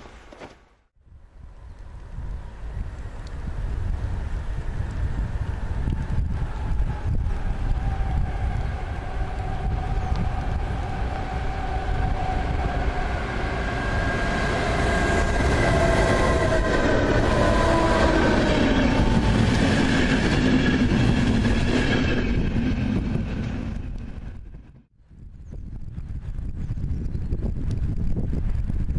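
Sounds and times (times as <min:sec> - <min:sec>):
electric train whine: 0:01.2 - 0:24.8
train wheels rumbling on rail: 0:01.9 - 0:24.9.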